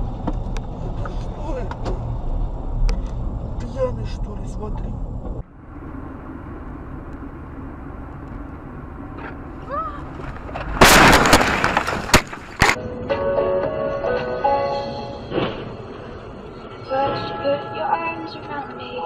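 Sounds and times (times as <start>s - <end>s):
tyre and road noise: 0.0s - 19.0s
loud car crash: 10.0s - 12.8s.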